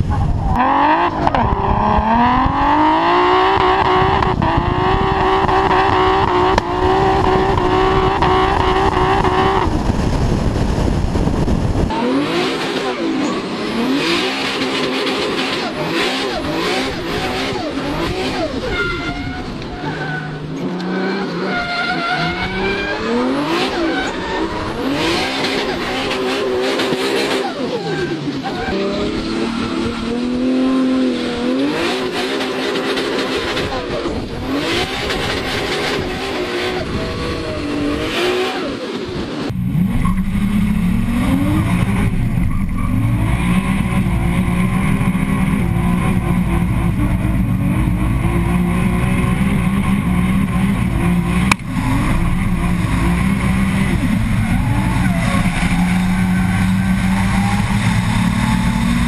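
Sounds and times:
car engine revving hard: 0.0 - 11.1, 11.8 - 59.0
heavy low rumble: 0.0 - 12.0, 39.2 - 59.0.

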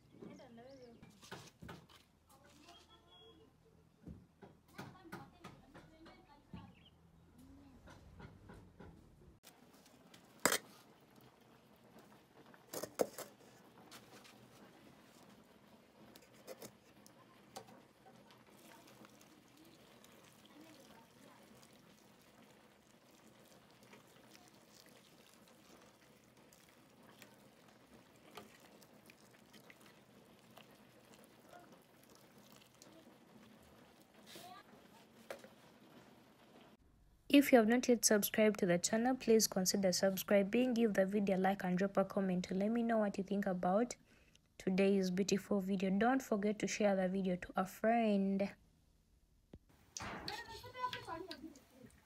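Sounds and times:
water pouring into metal pot: 10.1 - 36.8, 49.9 - 52.0.

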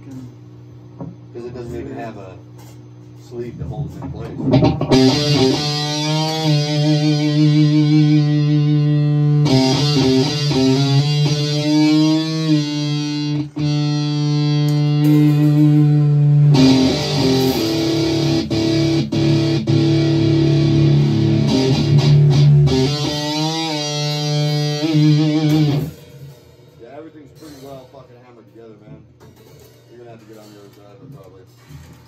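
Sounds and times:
electric guitar bent notes: 4.2 - 28.3.

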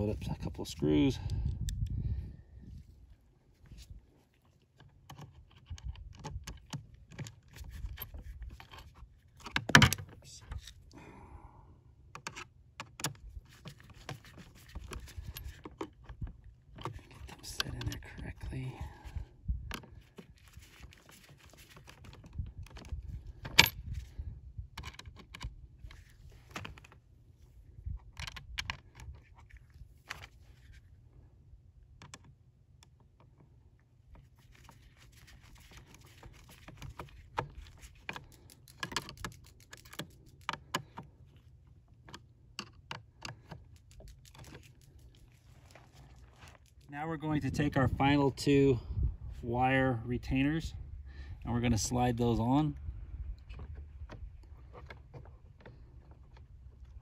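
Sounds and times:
small metallic clicks: 35.6 - 41.1.

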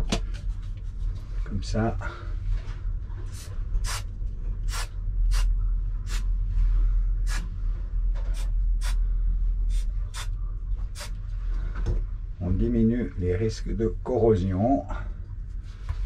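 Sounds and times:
steady low hum: 0.0 - 16.0
sharp hissing bursts: 3.4 - 4.0.

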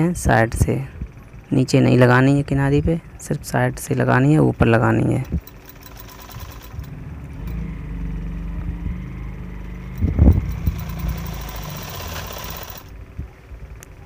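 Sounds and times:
sewing machine motor humming: 4.6 - 13.0.

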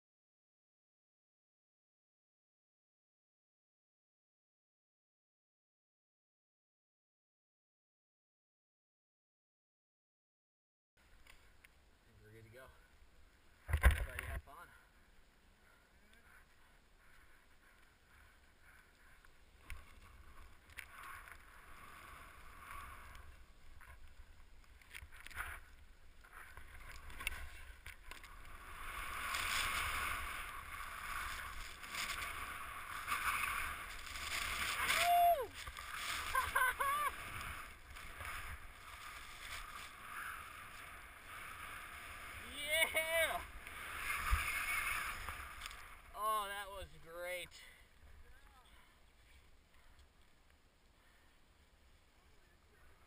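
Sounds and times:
skis swishing through powder snow: 17.3 - 24.4, 25.4 - 46.7
person yelling: 34.9 - 35.5, 42.4 - 43.5.

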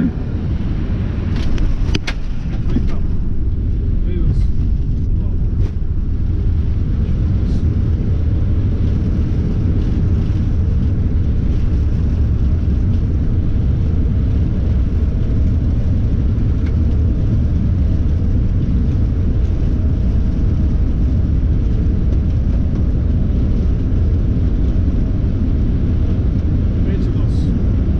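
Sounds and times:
airliner rolling low rumble: 0.0 - 27.9.

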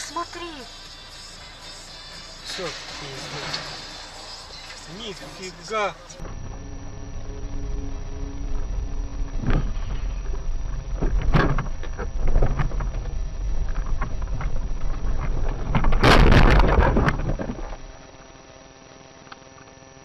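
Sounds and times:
car engine and road rumble: 0.0 - 19.1
loud collision burst: 15.9 - 17.0.

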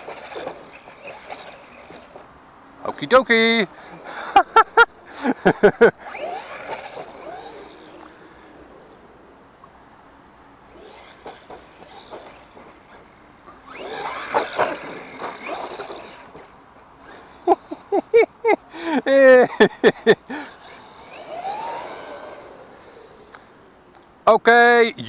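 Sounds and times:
electric motor whine: 0.0 - 2.3, 5.8 - 9.4, 10.6 - 17.8, 20.3 - 24.1
tyres on artificial turf: 0.0 - 25.0.

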